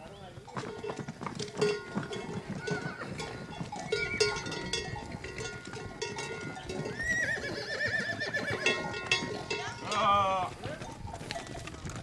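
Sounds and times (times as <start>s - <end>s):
hooves clattering on pavement: 0.0s - 12.0s
horse bells ringing: 0.0s - 12.0s
horse whinnying: 6.9s - 8.8s.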